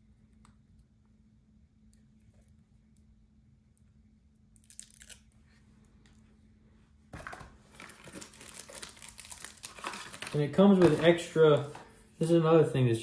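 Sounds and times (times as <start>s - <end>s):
faint steady hum: 0.0s - 13.0s
packaging crinkling: 7.2s - 11.7s.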